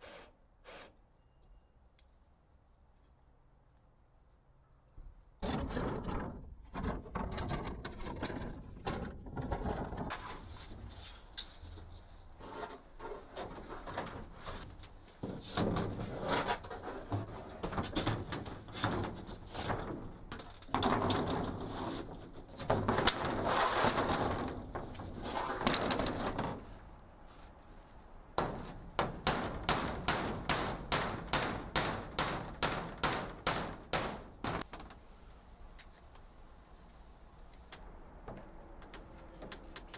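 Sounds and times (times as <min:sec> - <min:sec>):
knocks and scraping on wood: 0:05.4 - 0:35.0
hammer driving nails: 0:28.4 - 0:34.7.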